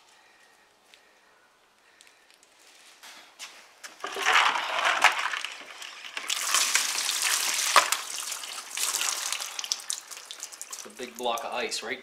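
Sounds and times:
ice cubes clattering: 4.0 - 9.3
water sloshing and splashing: 4.0 - 11.4.

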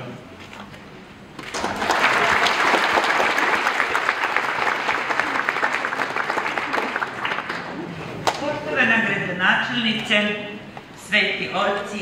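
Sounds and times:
audience applauding: 1.4 - 8.4.

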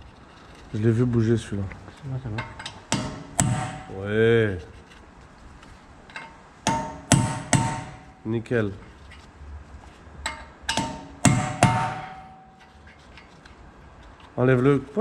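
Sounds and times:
hammer striking metal: 2.4 - 4.1, 6.1 - 8.3, 10.2 - 13.0.

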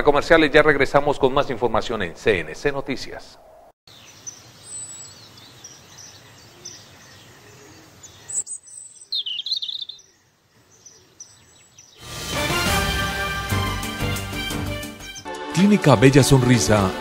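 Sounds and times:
faint outdoor hiss: 0.0 - 12.0
birds chirping: 0.3 - 12.1, 14.8 - 15.9
loud music: 12.0 - 17.0.

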